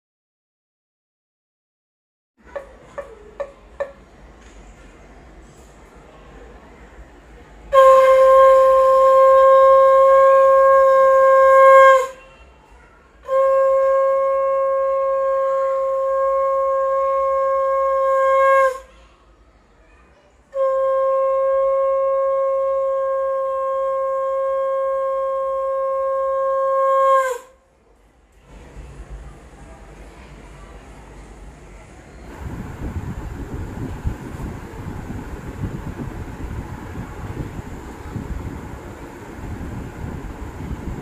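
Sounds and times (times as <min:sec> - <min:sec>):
conch shell blasts: 0:07.7 - 0:12.3, 0:13.3 - 0:18.8, 0:20.6 - 0:27.5.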